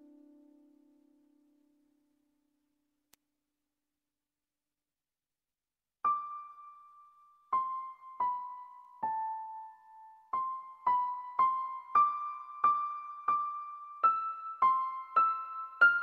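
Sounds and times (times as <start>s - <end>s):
slow solo piano melody: 6.0s - 16.0s.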